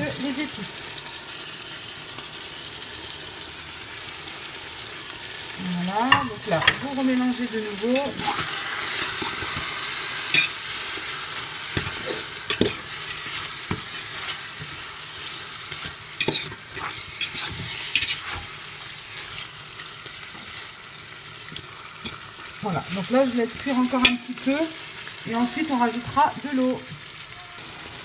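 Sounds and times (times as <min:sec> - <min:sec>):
food sizzling in oil: 0:00.0 - 0:28.0
spoon scraping a pot: 0:07.9 - 0:19.5.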